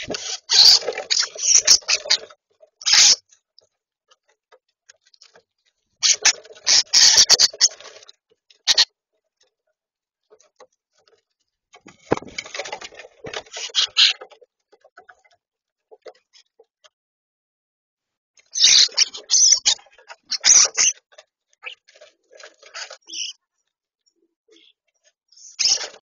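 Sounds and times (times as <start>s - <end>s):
birds pecking in plastic dish: 0.0s - 9.5s, 10.3s - 16.7s, 19.2s - 23.7s.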